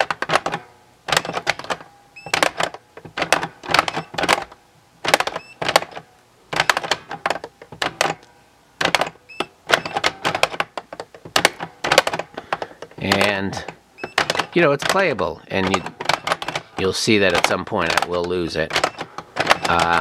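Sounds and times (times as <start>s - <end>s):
plastic flipper buttons clicking: 5.1s - 20.0s
faint electronic beeps: 9.2s - 10.0s.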